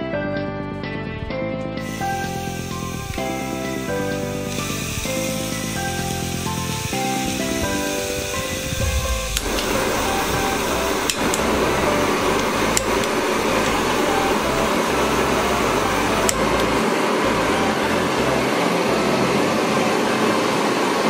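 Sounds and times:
gas torch jet hissing: 1.8 - 18.2
piezo igniter clicks: 9.2 - 14.4, 16.2 - 16.8.

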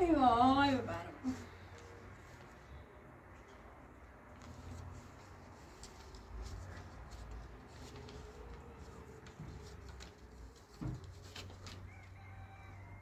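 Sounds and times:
paper rustling and ticking: 4.2 - 12.3.

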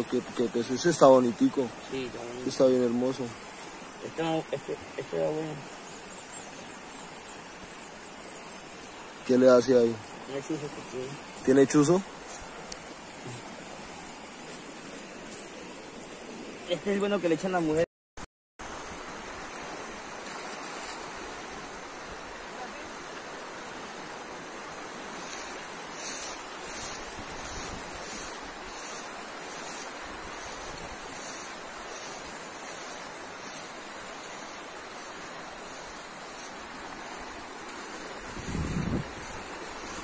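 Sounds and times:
fast-flowing river rushing: 18.7 - 40.0
wind on microphone: 25.1 - 31.6, 36.6 - 40.0.

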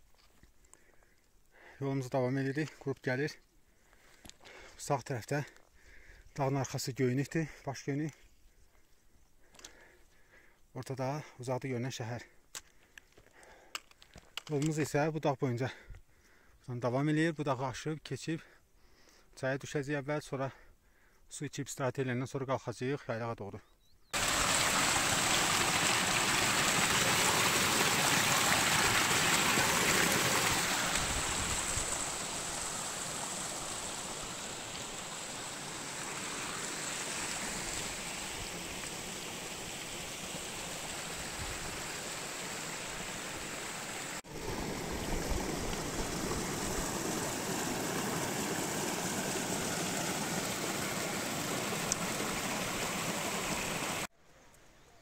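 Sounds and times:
stream rushing over rocks: 24.2 - 54.1.

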